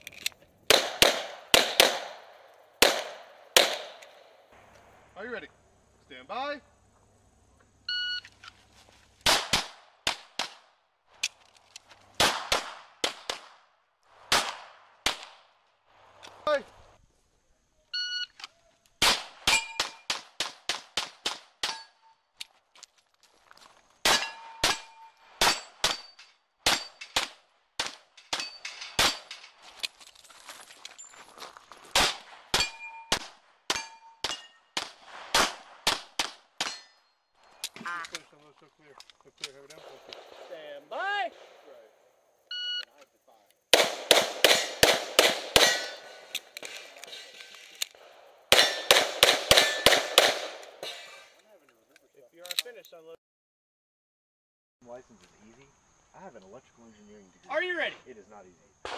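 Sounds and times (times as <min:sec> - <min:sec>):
rapid handgun shots: 0:00.7 - 0:04.3, 0:09.2 - 0:10.7, 0:12.2 - 0:13.6, 0:34.2 - 0:36.8, 0:43.7 - 0:46.3, 0:48.5 - 0:50.8
metallic ringing of steel targets: 0:19.5 - 0:20.0, 0:24.1 - 0:27.2, 0:28.3 - 0:29.4, 0:32.6 - 0:34.7, 0:36.6 - 0:37.2, 0:45.6 - 0:46.3, 0:48.5 - 0:50.0.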